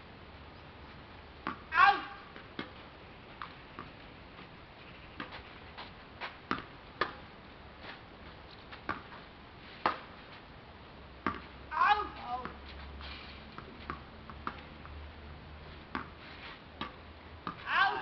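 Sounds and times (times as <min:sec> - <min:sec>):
tennis balls struck with rackets: 0:01.4 - 0:02.8, 0:03.4 - 0:04.0, 0:06.2 - 0:07.3, 0:08.8 - 0:09.2, 0:09.8 - 0:10.2, 0:11.2 - 0:12.6, 0:13.5 - 0:15.0, 0:15.8 - 0:16.2, 0:16.8 - 0:18.0
tennis balls bouncing on court: 0:01.4 - 0:04.5, 0:05.2 - 0:09.2, 0:11.2 - 0:12.8, 0:13.5 - 0:15.0, 0:15.8 - 0:16.2, 0:16.8 - 0:18.0.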